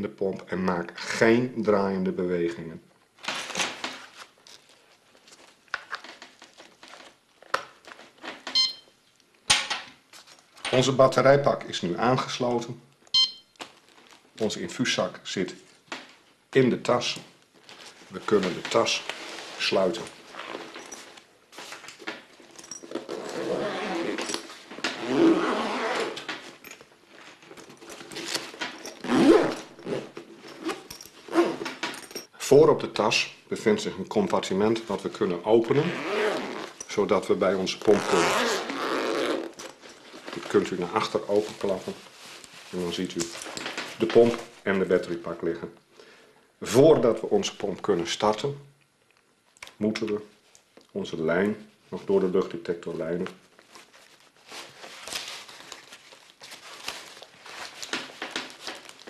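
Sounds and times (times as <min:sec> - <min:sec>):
handling clicks and rustling: 0:03.2 - 0:10.9, 0:17.1 - 0:32.3, 0:35.9 - 0:44.6, 0:52.3 - 0:59.0
short electronic beep: 0:13.1 - 0:13.5
zipper being pulled: 0:22.8 - 0:26.3, 0:27.9 - 0:31.7, 0:35.7 - 0:36.9, 0:37.9 - 0:39.8.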